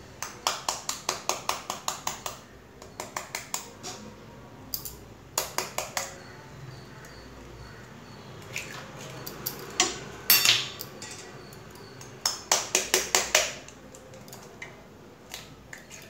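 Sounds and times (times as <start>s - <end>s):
spoon tapping eggshells: 0.2s - 3.7s, 4.8s - 6.3s, 8.5s - 15.9s.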